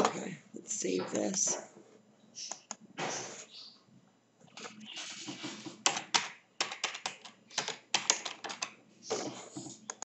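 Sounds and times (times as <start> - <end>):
keyboard typing: 4.5 - 10.0.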